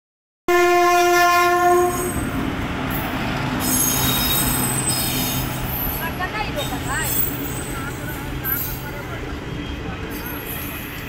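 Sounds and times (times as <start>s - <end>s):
locomotive horn blast: 0.5s - 2.3s
train rumbling past on rails: 0.5s - 11.0s.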